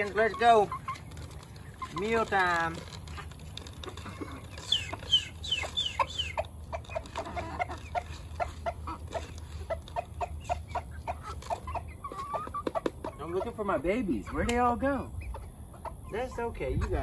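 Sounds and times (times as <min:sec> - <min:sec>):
chickens clucking: 0:00.0 - 0:17.0
high falling chicken calls: 0:03.9 - 0:13.2.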